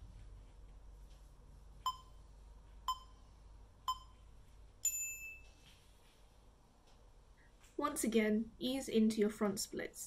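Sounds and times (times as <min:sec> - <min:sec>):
countdown timer beeping: 0:01.9 - 0:02.2, 0:02.9 - 0:03.2, 0:03.9 - 0:04.1.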